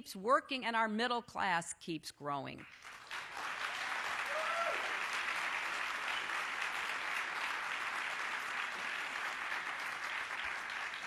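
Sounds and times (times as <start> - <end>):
audience clapping: 2.7 - 11.0.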